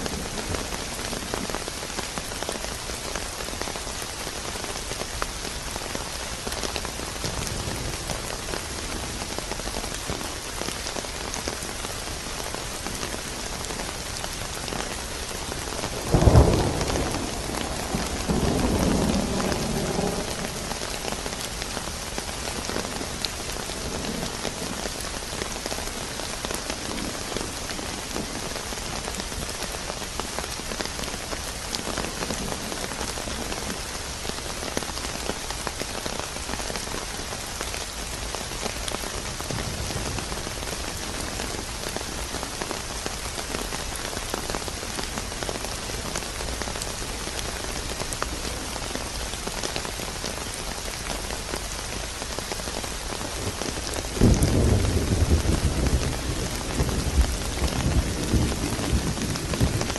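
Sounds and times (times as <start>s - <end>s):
steady rain: 0.0s - 59.9s
low rumble of thunder: 7.1s - 9.8s, 15.4s - 25.6s, 39.2s - 42.3s, 53.6s - 59.9s.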